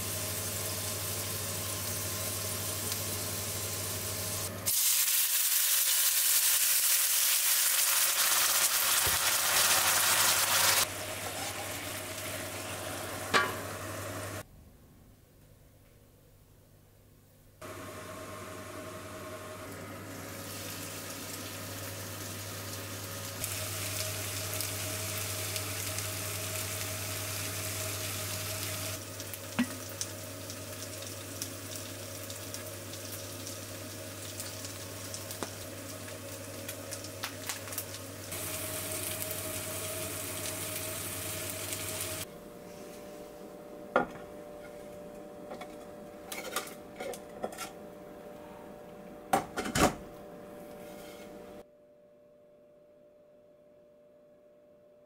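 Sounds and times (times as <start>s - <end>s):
dumplings sizzling in a frying pan: 0.0s - 14.4s, 17.6s - 42.3s.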